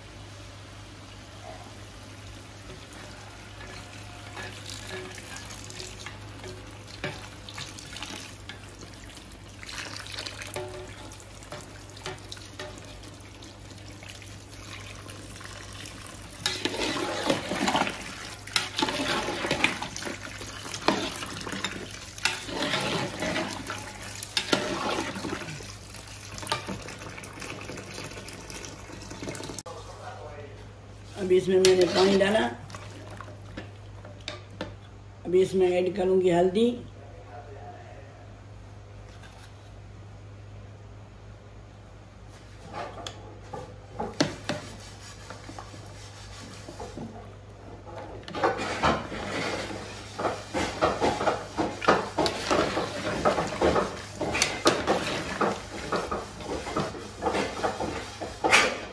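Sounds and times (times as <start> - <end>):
water pouring into a pot: 2.2 - 29.6, 32.6 - 33.5
spoon scraping and stirring: 3.6 - 8.6, 16.4 - 25.6, 31.5 - 32.4, 44.2 - 47.0, 48.3 - 58.7.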